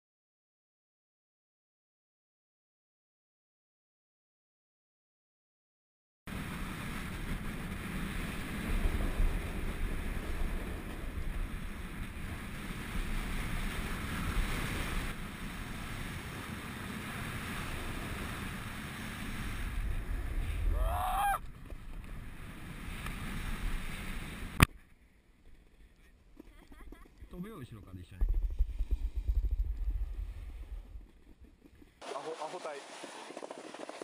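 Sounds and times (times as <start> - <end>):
snowboard scraping over snow: 6.3 - 24.6, 28.7 - 34.0
wind rushing over microphone: 6.3 - 24.7, 28.1 - 31.5.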